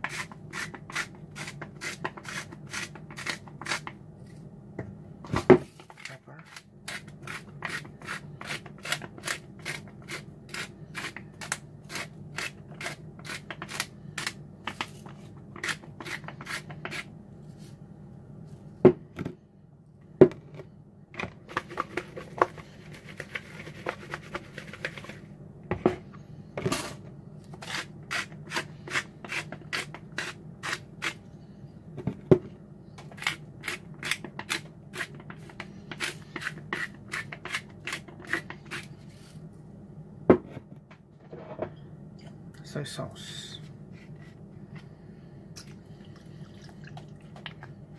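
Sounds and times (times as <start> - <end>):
spice grinder grinding: 0.0 - 4.0, 6.0 - 17.1, 27.6 - 31.2.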